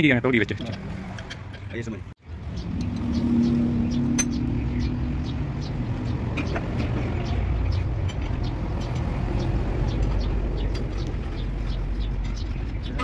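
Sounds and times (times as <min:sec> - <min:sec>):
low mechanical drone: 0:02.2 - 0:13.0.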